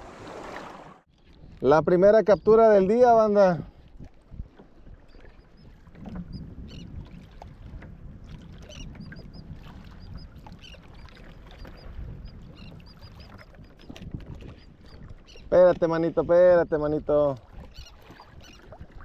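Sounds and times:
water sloshing against hull: 0.0 - 19.0
seabirds chirping: 1.4 - 3.0, 4.7 - 7.0, 8.6 - 18.8.

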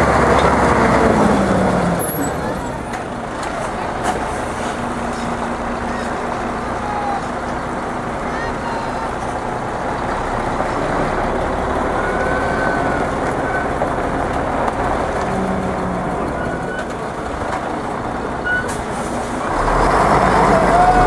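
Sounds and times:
diesel truck engine running: 0.0 - 21.0.

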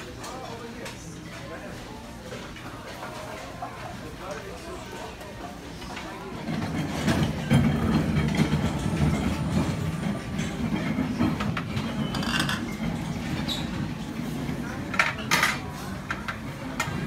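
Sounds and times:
hubbub of many voices: 0.0 - 17.0
dishes clinking: 6.6 - 13.7.

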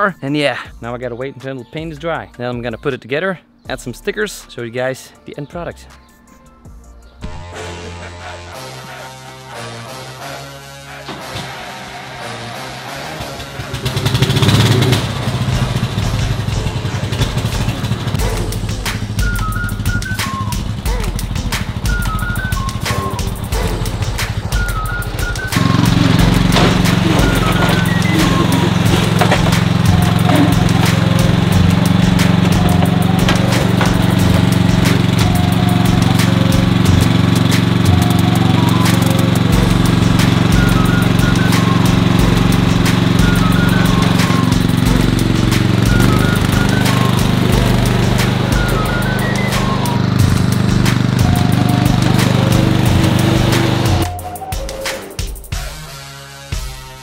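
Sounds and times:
background music: 0.0 - 57.0
lawn mower engine running: 13.4 - 54.2.

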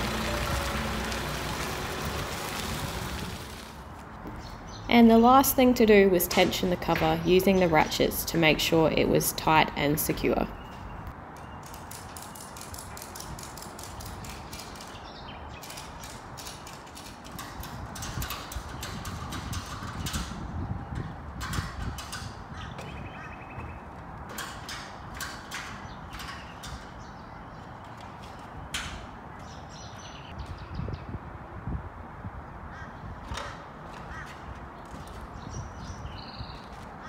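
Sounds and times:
ratchet strap clicking: 11.6 - 20.4.

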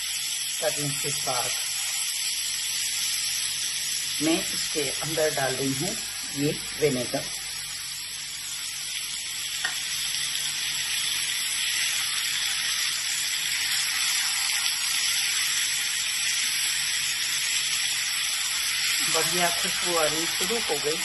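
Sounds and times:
vegetables sizzling in a wok: 0.0 - 21.0.

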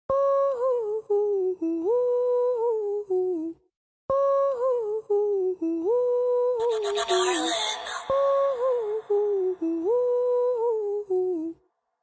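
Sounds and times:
person humming a melody: 4.2 - 11.6.

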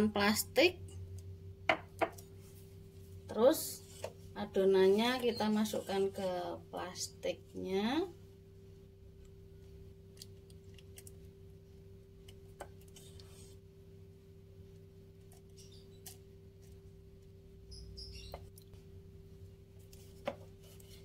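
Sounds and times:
low hum: 0.0 - 21.0
wooden spatula scraping metal pot: 3.5 - 6.6.

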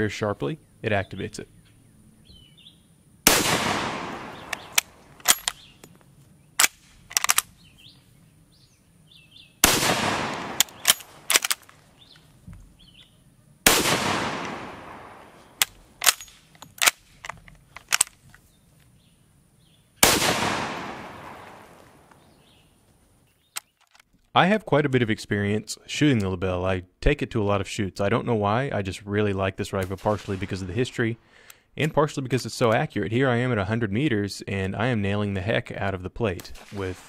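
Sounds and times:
rifle shots echoing: 3.2 - 5.9, 9.6 - 11.8, 13.6 - 17.3, 20.0 - 22.2, 29.8 - 31.2, 36.4 - 37.0
rifle bolt clacking: 3.6 - 6.0, 6.6 - 7.5, 9.9 - 12.2, 14.0 - 18.3.

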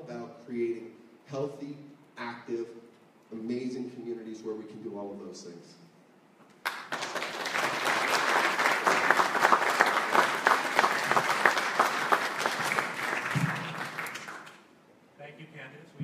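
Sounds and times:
audience applauding: 6.6 - 14.6.

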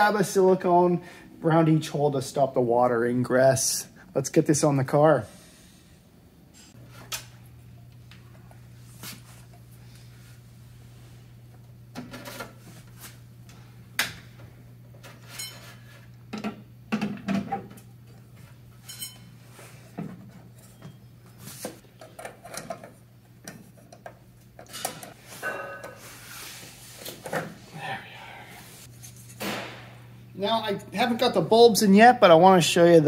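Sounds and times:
steady low hum: 22.4 - 32.5.

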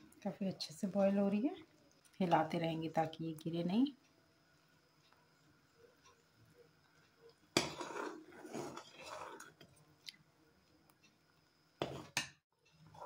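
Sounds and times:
spoon stirring thick batter: 5.0 - 11.2, 11.8 - 13.0.

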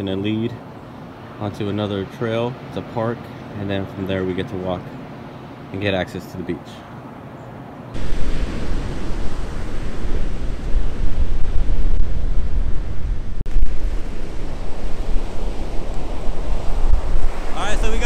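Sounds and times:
ocean surf breaking: 7.9 - 18.0
wind buffeting microphone: 8.0 - 18.0.

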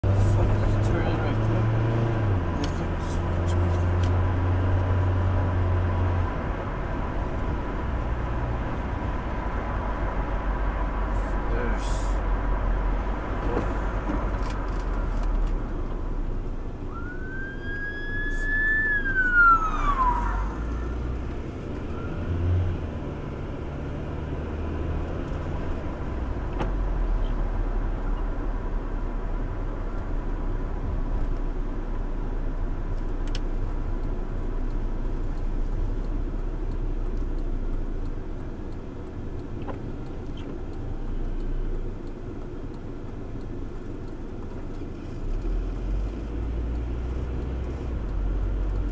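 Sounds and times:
car road and engine noise: 0.0 - 48.9
police siren wail: 16.9 - 22.8.

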